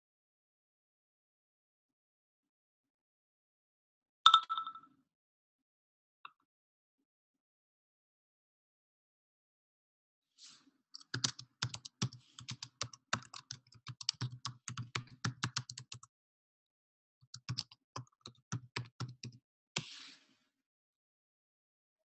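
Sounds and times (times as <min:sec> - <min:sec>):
computer keyboard typing: 0:11.0 - 0:16.1, 0:17.2 - 0:19.4.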